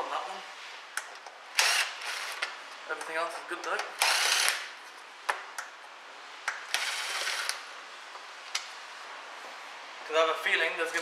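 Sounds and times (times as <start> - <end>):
cordless driver spinning: 1.6 - 2.4, 4.0 - 4.6.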